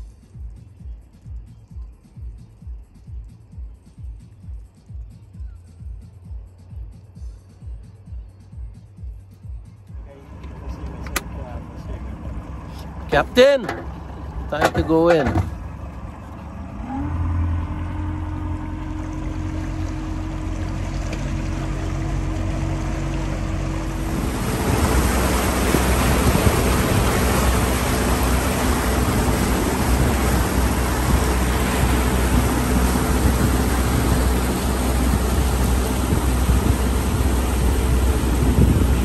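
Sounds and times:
motorboat engine: 9.1 - 39.0
rushing water and wind: 10.0 - 39.0.

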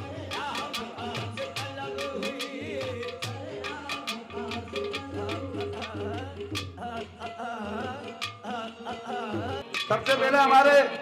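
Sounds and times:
steady drum beat: 0.0 - 7.0.

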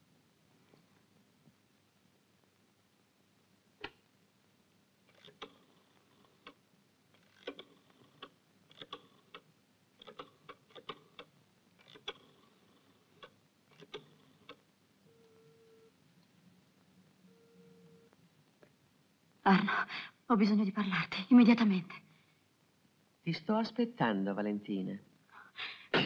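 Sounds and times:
rotary phone dial clicking: 5.1 - 6.6, 7.2 - 9.4, 10.0 - 14.6
steady telephone tone: 15.0 - 16.0, 17.2 - 18.2.

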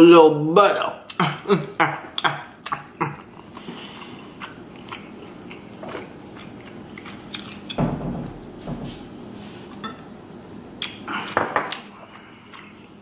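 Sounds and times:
person chewing with wet smacks: 2.2 - 7.8.

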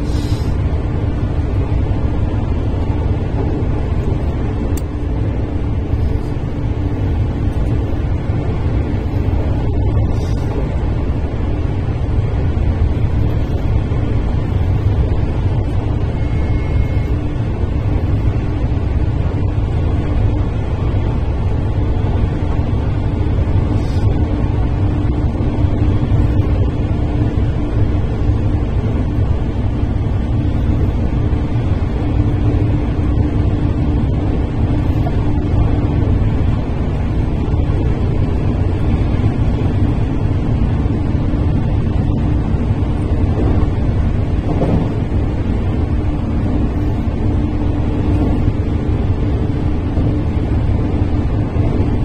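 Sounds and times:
electric train hum: 0.0 - 52.0
train wheels rumbling on rails: 0.0 - 52.0.

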